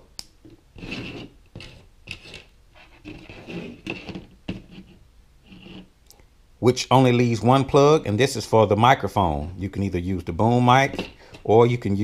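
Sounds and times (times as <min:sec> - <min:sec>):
cables rubbing and scraping: 0:00.4 - 0:05.9.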